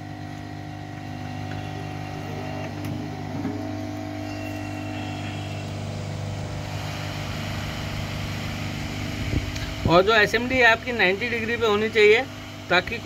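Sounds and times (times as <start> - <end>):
blower humming with air hiss: 0.0 - 13.0.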